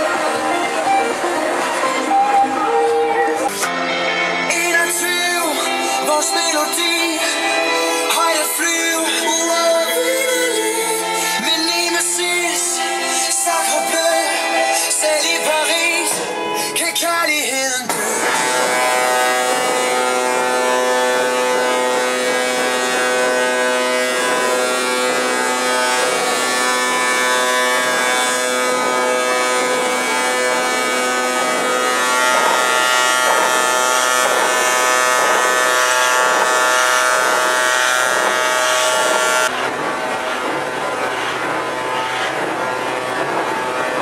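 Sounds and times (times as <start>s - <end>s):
diesel engines droning: 18.0s - 44.0s.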